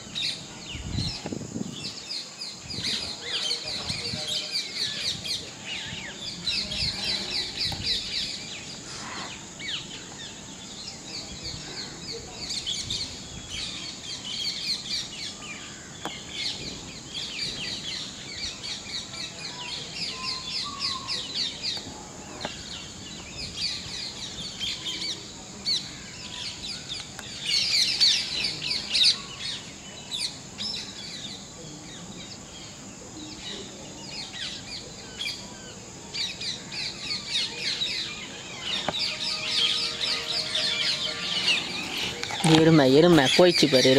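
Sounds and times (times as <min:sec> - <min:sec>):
birds chirping: 0:32.6 - 0:43.9.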